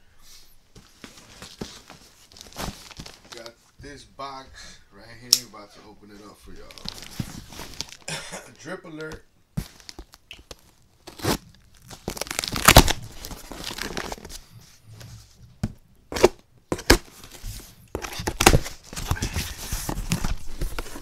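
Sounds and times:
cardboard and packaging rustling: 0.7 - 4.0, 6.2 - 8.1, 9.0 - 21.0
packing tape ripping: 10.0 - 14.2.

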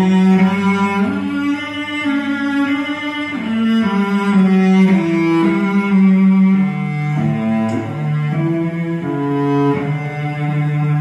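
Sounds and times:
slow cello melody: 0.0 - 11.0.

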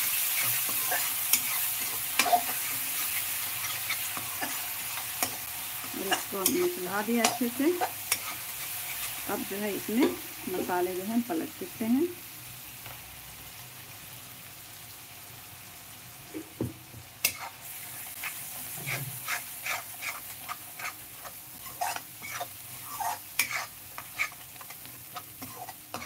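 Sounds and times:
spice paste sizzling in oil: 0.0 - 26.0
metal spoon scraping pan: 0.1 - 9.2, 17.2 - 17.6, 18.2 - 26.0.

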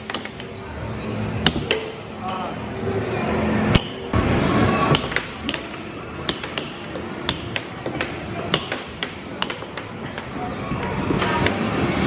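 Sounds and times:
air hockey puck clacking: 0.0 - 0.6, 1.4 - 2.4, 4.9 - 10.4.

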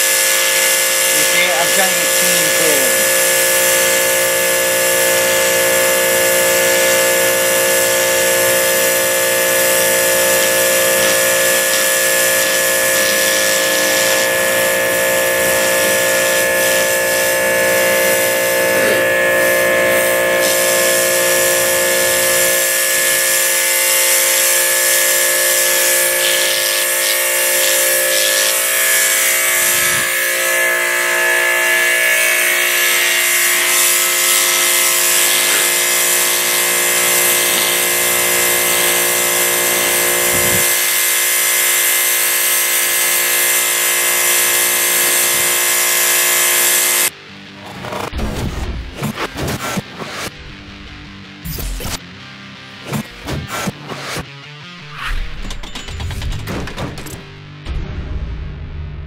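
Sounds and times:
pressure washer whine: 0.0 - 48.2
water spray hissing on concrete: 0.4 - 4.6, 6.5 - 22.8, 24.2 - 29.2, 34.7 - 40.8.

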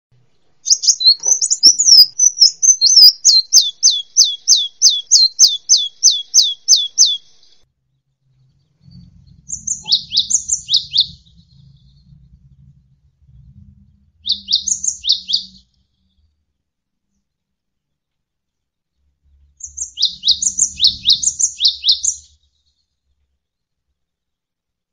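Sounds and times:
songbird twittering and whistling: 0.6 - 7.6, 8.9 - 12.1, 14.2 - 16.2, 19.6 - 22.8
faint low hum: 7.2 - 21.4.

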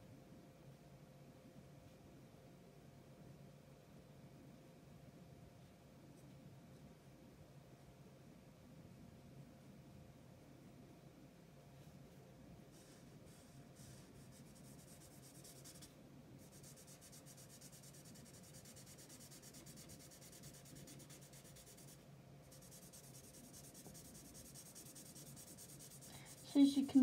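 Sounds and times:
marker rubbing over paper: 12.7 - 26.8.

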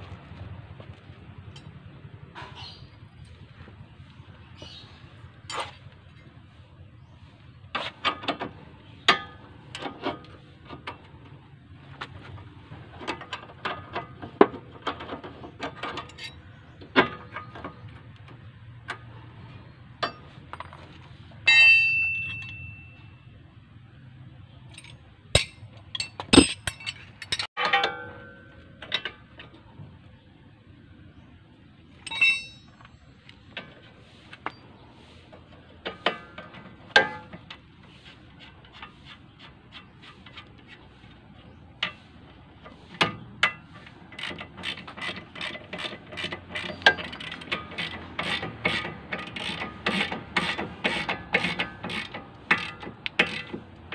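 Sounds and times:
wrenches clinking on metal: 14.8 - 16.4, 21.5 - 23.0, 24.7 - 29.4, 32.0 - 32.9, 42.9 - 53.9
loud ringing clang: 21.5 - 23.3, 32.1 - 32.8
sharp metal knocks: 25.4 - 29.1.

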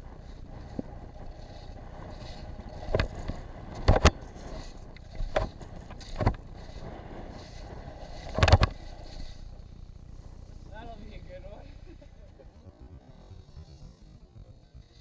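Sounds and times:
skis scraping thuds: 0.0 - 12.4
skis hissing on snow: 6.5 - 9.6.

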